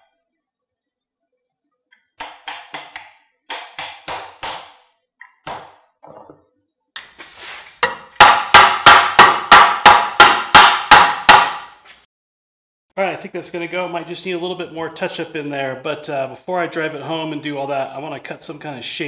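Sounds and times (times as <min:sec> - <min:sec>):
wooden mallet knocking wood: 0:02.2 - 0:06.3, 0:07.8 - 0:11.7.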